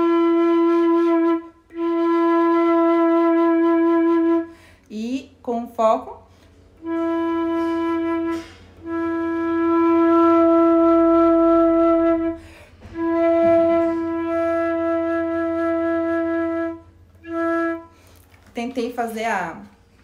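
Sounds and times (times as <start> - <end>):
flute playing long notes: 0.0 - 4.6, 6.8 - 18.3
breaths between notes: 4.5 - 4.9, 12.3 - 13.0.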